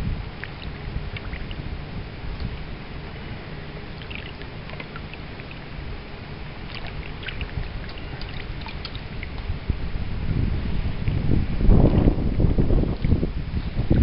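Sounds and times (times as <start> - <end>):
stream rushing: 0.0 - 14.0
water dripping: 0.4 - 1.7, 3.8 - 5.8, 6.6 - 9.5.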